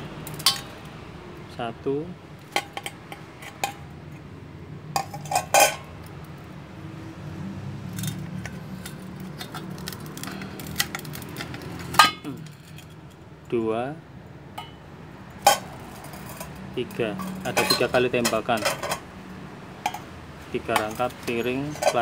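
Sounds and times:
steel plates clinking: 0.2 - 0.9, 2.4 - 3.9, 4.9 - 6.1, 8.0 - 13.1, 14.6 - 19.1, 19.8 - 22.0.

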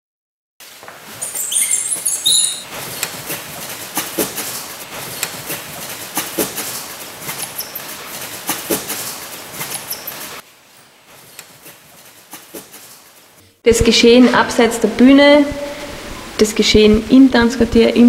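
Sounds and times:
short high chirps: 1.2 - 2.7.

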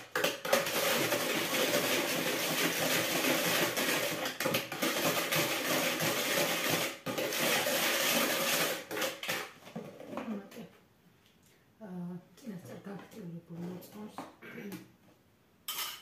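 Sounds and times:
metal whisk beating batter: 0.0 - 9.4.

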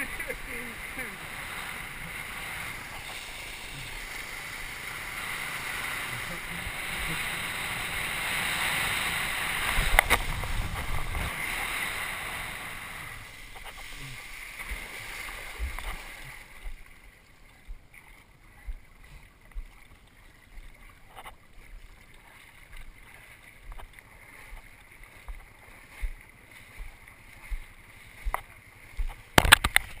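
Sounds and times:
water lapping and sloshing: 0.0 - 30.0.

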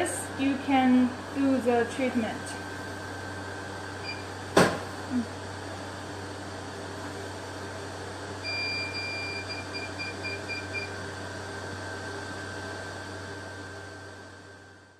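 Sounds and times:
machine hum: 0.0 - 14.9
machine beeping: 8.4 - 11.0.

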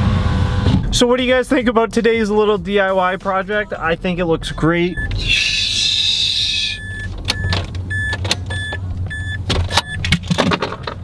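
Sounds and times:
car warning chime beeping: 3.8 - 5.3, 6.6 - 10.1.

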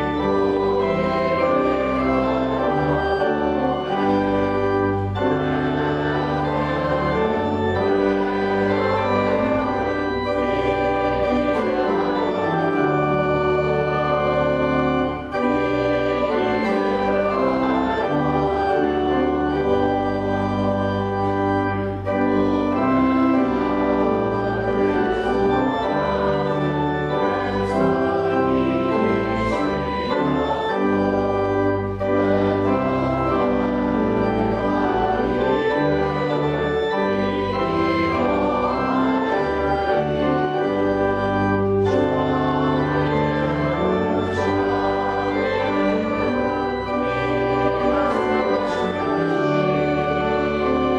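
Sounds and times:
church organ sustained chords: 0.0 - 50.9.

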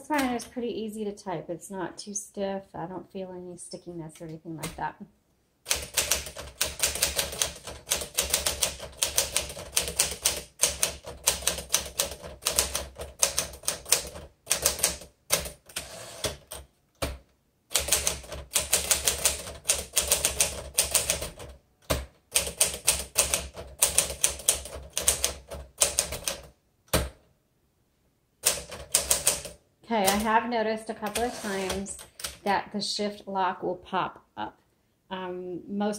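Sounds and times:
manual typewriter typing: 5.7 - 27.1, 28.4 - 30.4, 31.0 - 32.5.

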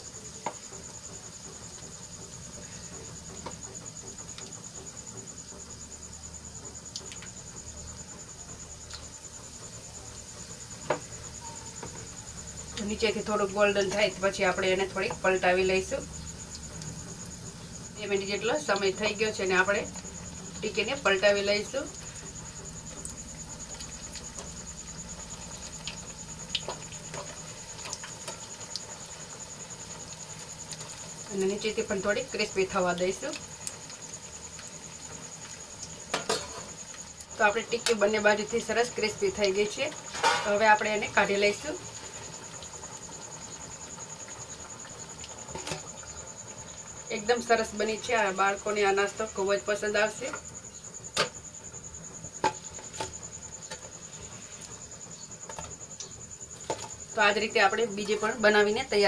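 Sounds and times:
deep-frying sizzle: 0.0 - 59.0
oil popping: 22.0 - 31.9.

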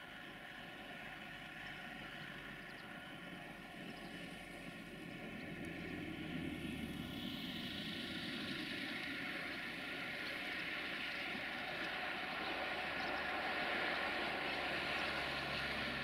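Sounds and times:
distant freight train rumble: 0.0 - 16.0.

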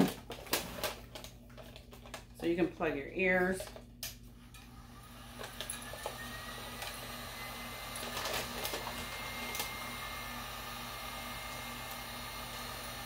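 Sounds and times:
heat gun fan blowing: 2.4 - 13.0.

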